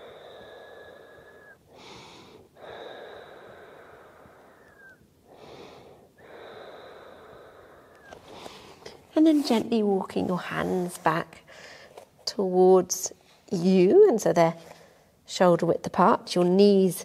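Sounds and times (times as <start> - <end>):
whistling exhales: 4.4 - 5.0.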